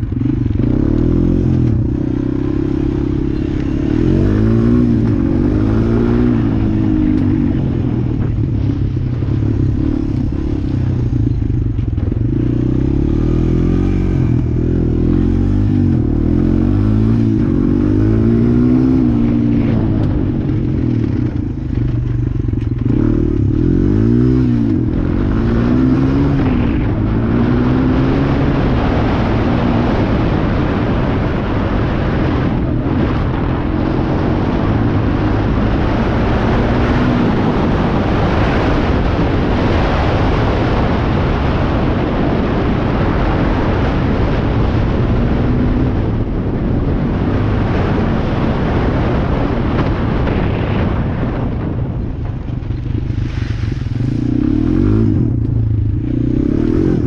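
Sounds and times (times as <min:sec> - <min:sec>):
broad rushing noise: 0:00.0 - 0:57.0
quad engine revving: 0:00.2 - 0:07.8, 0:12.2 - 0:21.4, 0:22.8 - 0:41.9, 0:53.9 - 0:57.0.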